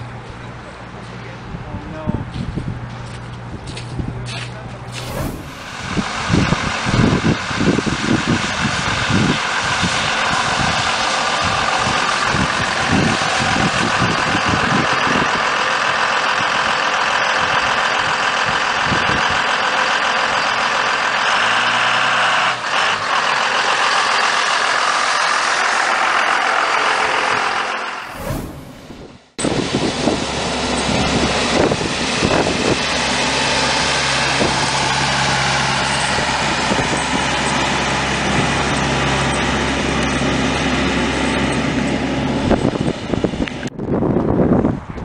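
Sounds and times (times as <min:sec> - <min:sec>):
low rumbling thumps: 0:04.9 - 0:07.3, 0:28.0 - 0:29.4.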